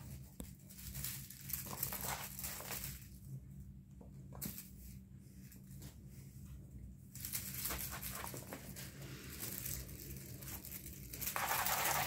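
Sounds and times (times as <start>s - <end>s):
kittens scuffling on a floor: 0.0s - 12.0s
claws clicking on floor: 0.1s - 3.2s, 7.2s - 12.0s.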